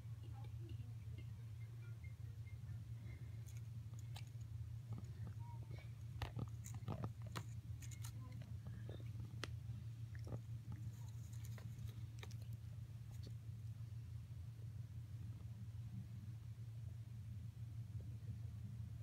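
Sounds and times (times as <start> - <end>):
steady low hum: 0.0 - 19.0
cat chewing grass: 3.1 - 13.9.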